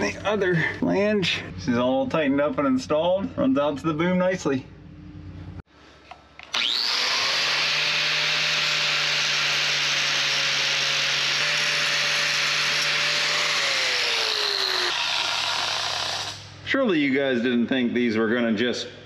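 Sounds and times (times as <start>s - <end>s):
angle grinder grinding metal: 6.4s - 16.5s.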